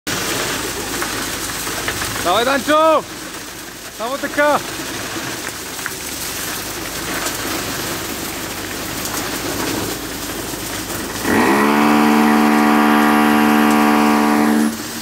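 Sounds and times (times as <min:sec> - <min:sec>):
concrete pumping through hose: 0:00.1 - 0:15.0
loud horn blast: 0:11.2 - 0:15.0.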